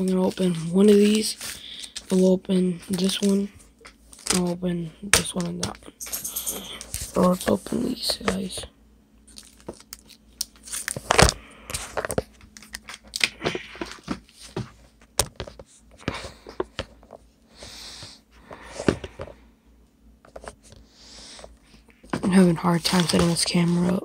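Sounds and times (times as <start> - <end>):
plastic wrapper crinkling: 4.0 - 4.5, 9.3 - 14.0.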